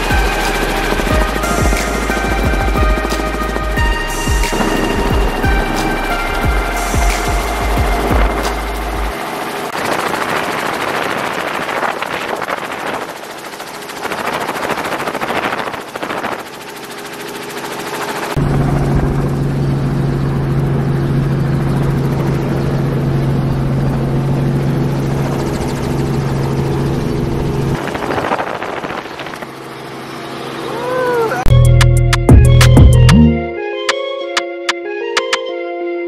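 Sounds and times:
steady low hum: 0:00.0 - 0:09.2
helicopter rotor rushing: 0:00.0 - 0:33.1.

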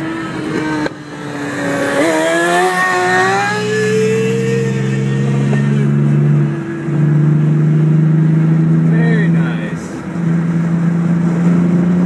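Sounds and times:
motorcycle engine revving hard: 0:00.0 - 0:09.5
car engine drone: 0:00.0 - 0:12.0
road noise: 0:00.0 - 0:12.0.

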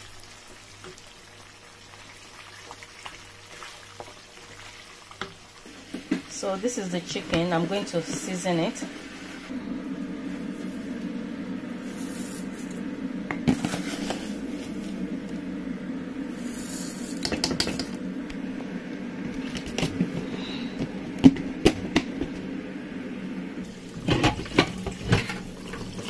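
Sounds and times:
low hum: 0:06.5 - 0:25.7.

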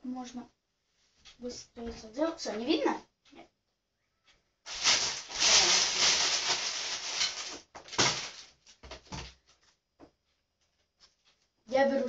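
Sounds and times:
loud rustling: 0:04.7 - 0:08.8.

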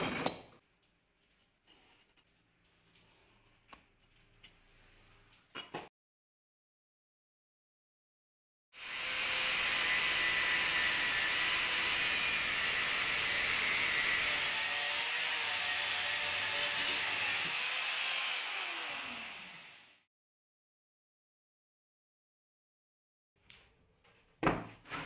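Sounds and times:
angle grinder cutting steel: 0:08.8 - 0:20.1.

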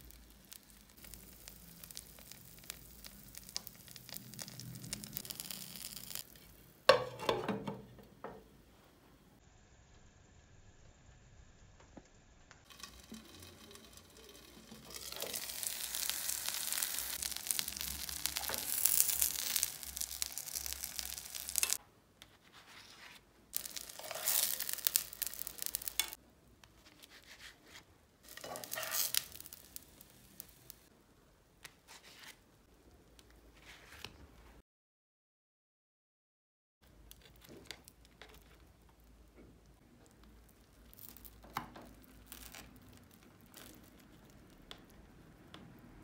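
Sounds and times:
food sizzling in a pan: 0:00.0 - 0:07.1, 0:09.4 - 0:21.8, 0:23.6 - 0:26.2, 0:27.3 - 0:30.9, 0:40.7 - 0:44.9
spatula scraping: 0:12.7 - 0:26.2, 0:26.8 - 0:30.8.

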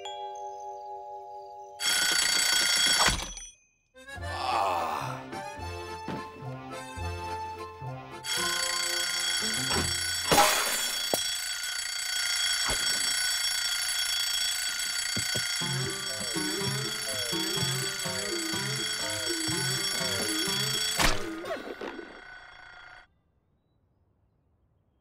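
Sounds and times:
alarm clock ringing: 0:01.8 - 0:03.6, 0:08.2 - 0:23.1
bouncy background music: 0:04.0 - 0:10.0, 0:15.6 - 0:20.9.

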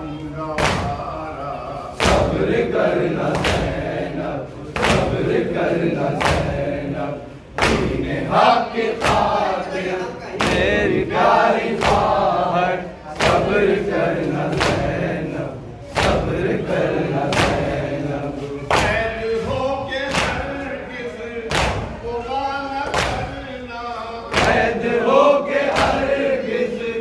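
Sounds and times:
men chanting together: 0:00.0 - 0:27.0
hands slapping chests: 0:03.2 - 0:03.9, 0:04.7 - 0:06.8, 0:07.5 - 0:08.1, 0:08.9 - 0:09.5, 0:17.1 - 0:17.9, 0:21.5 - 0:22.0, 0:25.7 - 0:26.2.

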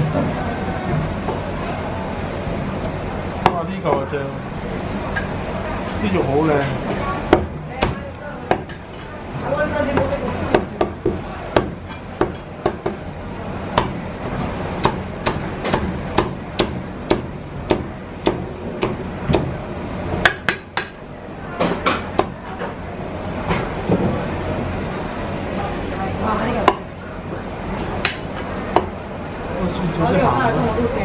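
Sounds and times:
cleaver chopping on wooden block: 0:14.8 - 0:19.5.

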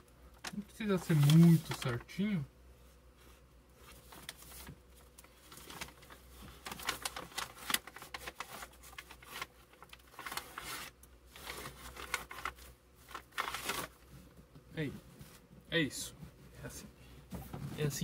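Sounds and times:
paper bag rustling and crinkling: 0:00.4 - 0:02.1, 0:03.8 - 0:14.2.

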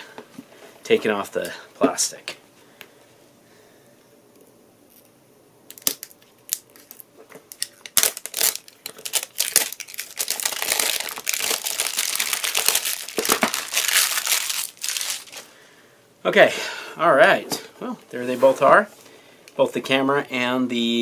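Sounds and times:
plastic shrink-wrap crinkling: 0:05.7 - 0:15.5.

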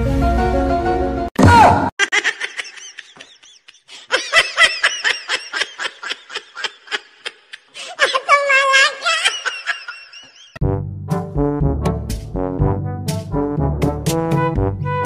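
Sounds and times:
person laughing: 0:02.0 - 0:10.6.

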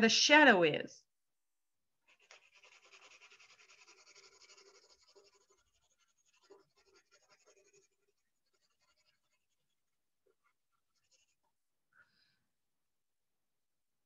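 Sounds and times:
pencil scratching on paper: 0:02.0 - 0:11.7.

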